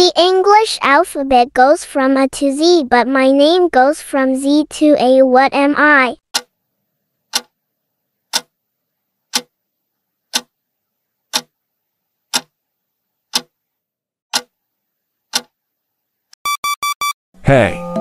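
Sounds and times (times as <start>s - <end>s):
clock ticking: 6.3s - 6.6s, 7.3s - 7.5s, 8.3s - 8.6s, 9.3s - 9.5s, 10.3s - 10.5s, 11.3s - 11.5s, 12.3s - 12.5s, 13.3s - 13.5s, 14.3s - 14.5s, 15.3s - 15.5s.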